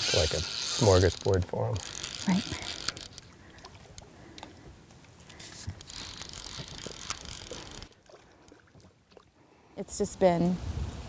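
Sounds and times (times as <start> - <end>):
fishing reel drag clicking: 0.0 - 3.3, 5.4 - 8.0.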